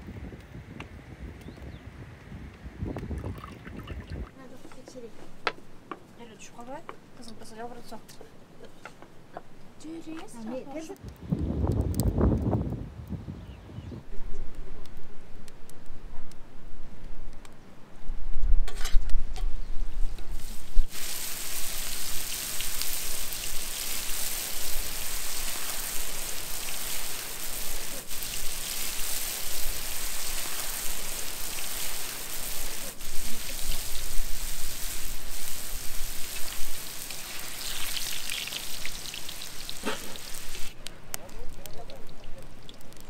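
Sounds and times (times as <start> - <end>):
dough sizzling in hot oil: 20.3 - 40.8.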